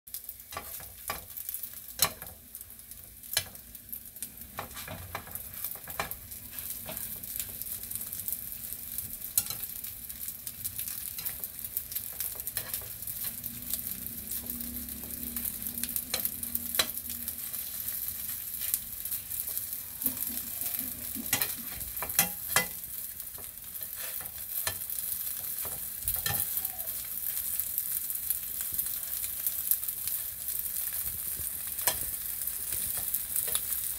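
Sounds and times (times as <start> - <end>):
squid sizzling in frying pan: 0.1 - 33.9
metal tongs tapping pan: 0.5 - 1.3, 2.0 - 2.4, 3.3 - 3.6, 4.5 - 6.2, 6.8 - 7.6, 9.3 - 9.8, 16.0 - 17.1, 19.4 - 26.6, 31.8 - 33.7.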